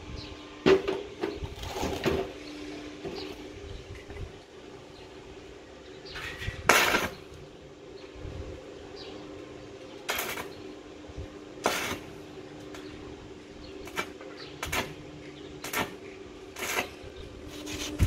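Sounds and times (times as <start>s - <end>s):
arc welding crackling: 3.2s - 8.0s, 8.6s - 18.0s.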